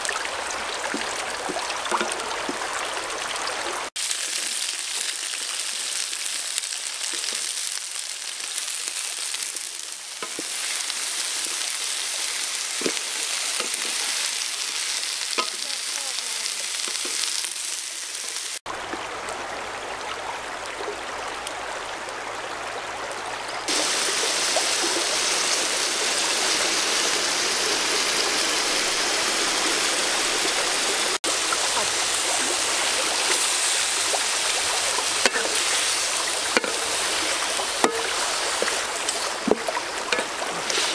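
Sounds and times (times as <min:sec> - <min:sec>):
river water flowing: 0:00.0 - 0:03.9, 0:18.7 - 0:40.9
food sizzling in a wok: 0:03.9 - 0:18.6, 0:23.7 - 0:40.9
spatula stirring in a wok: 0:35.2 - 0:40.9.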